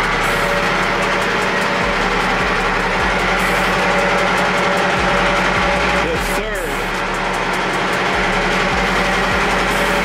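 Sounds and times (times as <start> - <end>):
mechanical hum: 0.0 - 10.0.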